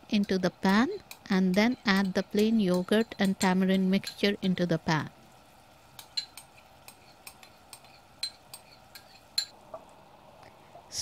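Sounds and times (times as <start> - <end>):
faint sizzling in a pan: 0.0 - 11.0
spoon clinking against a bowl: 0.7 - 4.5, 6.0 - 9.6.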